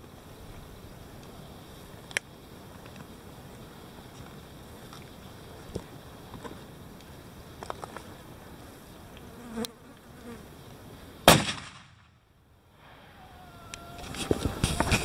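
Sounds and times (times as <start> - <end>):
rifle shot: 11.2 - 12.2.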